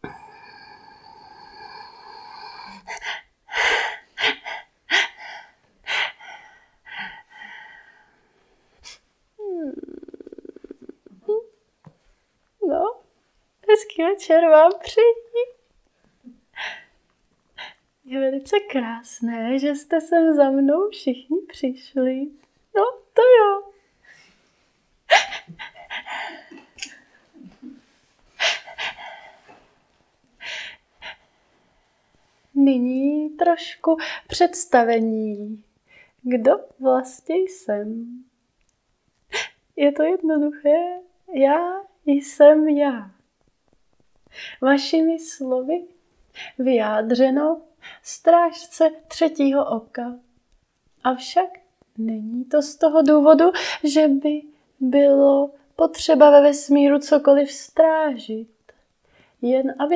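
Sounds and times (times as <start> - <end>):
person gasping: 0.0 - 8.1, 25.1 - 26.9
background hum: 0.0 - 59.9
woman laughing: 25.1 - 26.6.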